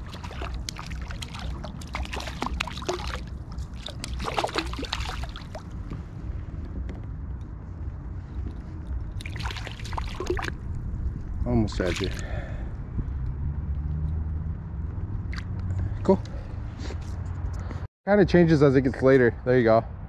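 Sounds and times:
river water running: 0.0 - 5.8, 9.2 - 10.6, 11.7 - 12.4
wind rumble on microphone: 0.0 - 20.0.

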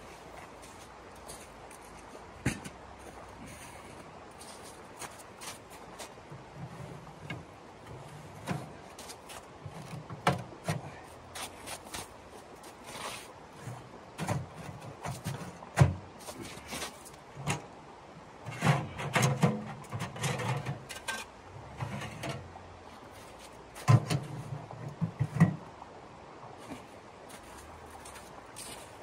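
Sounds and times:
sheet metal stove knocks and clanks: 23.8 - 25.6.

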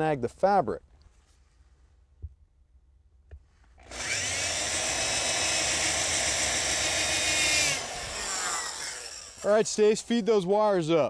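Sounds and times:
power drill grinding through floor: 3.8 - 9.9.

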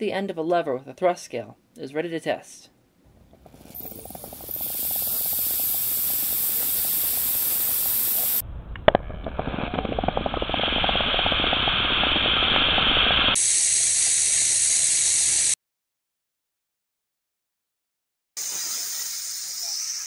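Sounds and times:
rocket engine flame hissing: 3.1 - 8.4, 9.1 - 15.6
gas hissing with fast crackle: 3.1 - 15.6.

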